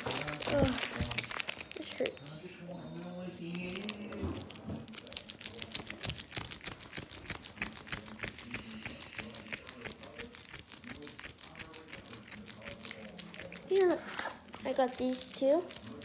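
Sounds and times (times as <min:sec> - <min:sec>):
plastic wrapper crinkling: 0:00.0 - 0:02.6, 0:03.4 - 0:08.2.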